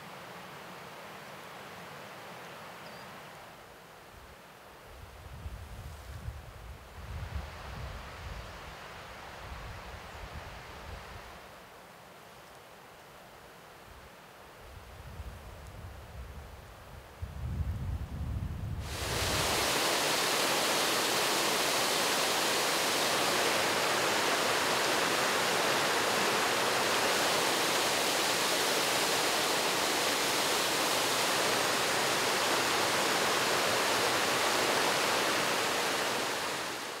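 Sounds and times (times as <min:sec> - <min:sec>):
mountain stream rushing: 0:18.8 - 0:37.0.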